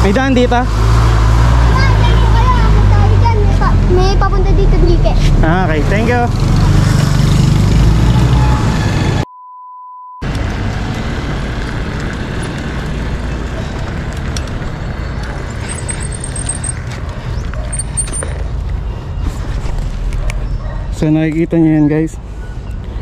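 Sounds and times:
road traffic rumble: 0.0 - 9.2, 10.2 - 23.0
steady bleep tone: 9.2 - 10.2.

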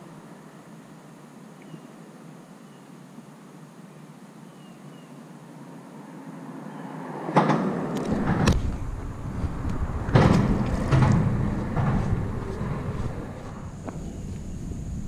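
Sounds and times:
handling knocks and rustling: 7.5 - 14.0
wind rumble on microphone: 7.8 - 15.0.

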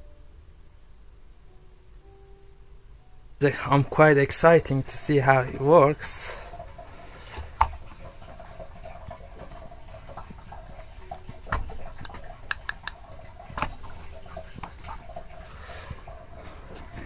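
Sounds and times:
oil pump humming: 3.8 - 17.0
light pump ticks: 11.6 - 13.0.

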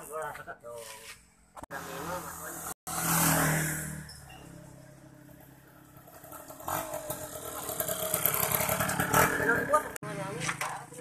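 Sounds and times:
two-stroke motorcycle engine buzzing: 2.1 - 10.0.

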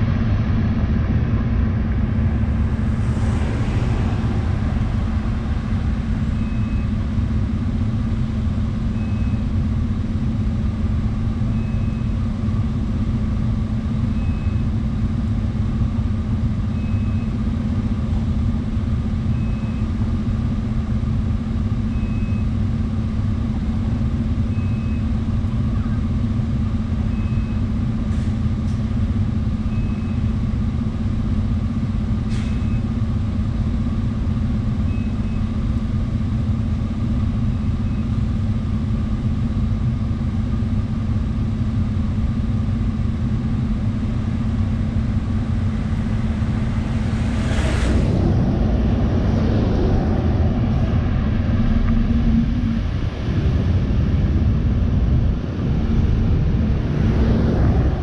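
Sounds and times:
short high beep: 6.4 - 7.0.

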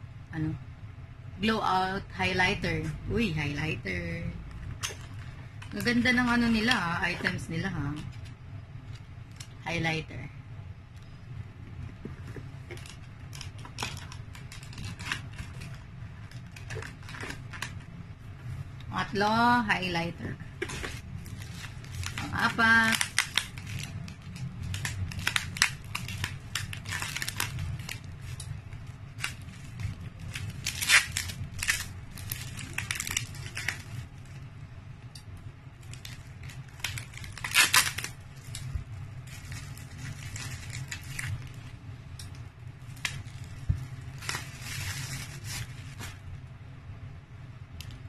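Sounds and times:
bubble wrap crinkling: 4.3 - 9.7, 11.8 - 18.0, 20.4 - 34.7, 35.6 - 46.5
scissors cutting bubble wrap: 12.7 - 17.8, 20.6 - 34.1, 35.8 - 38.7, 39.3 - 41.6, 42.9 - 46.2.

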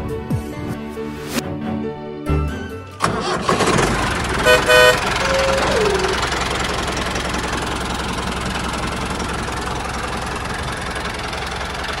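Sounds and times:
engine idling with knocking beat: 3.6 - 12.0.

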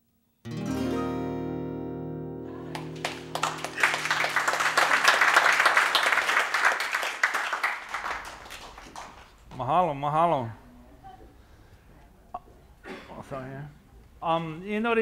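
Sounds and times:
acoustic guitar chord ringing: 0.5 - 5.0
audience applause: 2.6 - 9.4.

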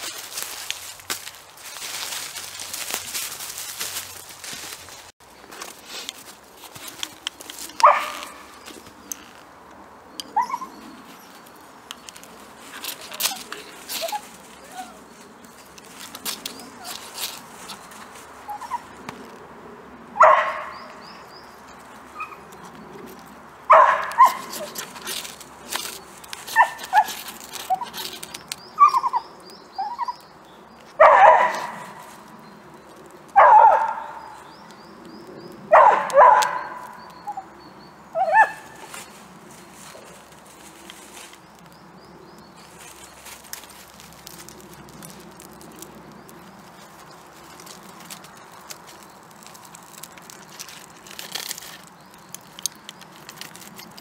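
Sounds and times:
dog barking: 7.8 - 8.4, 20.2 - 20.7, 23.7 - 24.7, 31.0 - 32.0, 33.4 - 34.2, 35.7 - 36.9
ferro rod scraping bark: 23.7 - 29.1.

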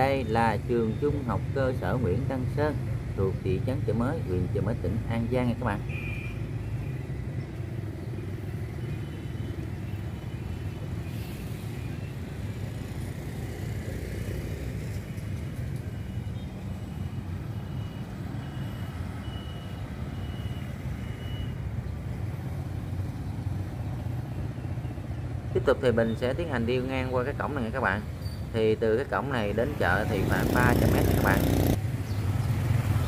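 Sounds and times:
motorbikes and car passing: 0.0 - 33.0
faint high-pitched beep: 15.9 - 21.6.

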